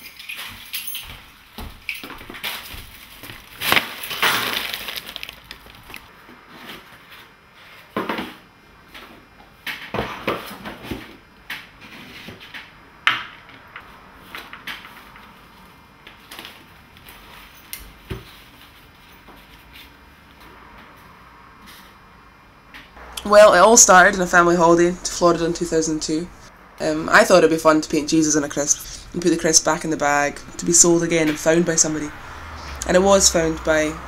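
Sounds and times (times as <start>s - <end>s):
crackling handling noises: 1.8s - 6.1s.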